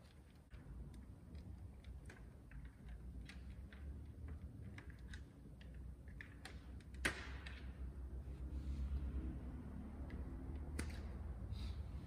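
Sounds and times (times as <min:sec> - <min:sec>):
plastic clicks and rattles: 0:00.0 - 0:07.7
plastic snap: 0:06.1 - 0:07.7.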